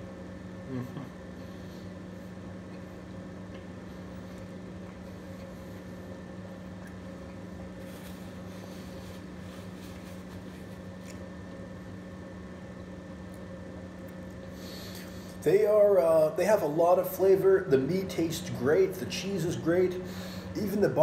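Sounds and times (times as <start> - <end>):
low room hum: 0.0 - 21.0
chewing and mouth noises: 2.2 - 11.7.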